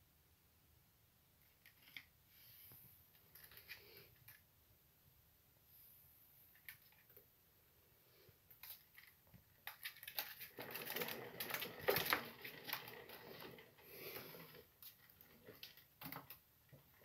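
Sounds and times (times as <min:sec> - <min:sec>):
plastic exercise wheel spinning and clicking: 0:09.6 - 0:17.0.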